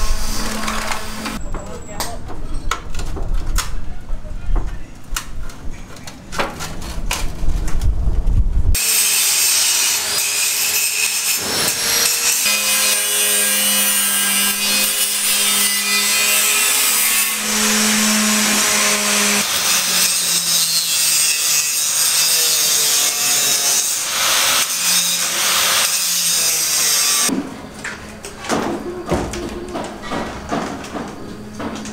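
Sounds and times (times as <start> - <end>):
angle grinder cutting steel: 0.0 - 1.4, 8.8 - 27.3.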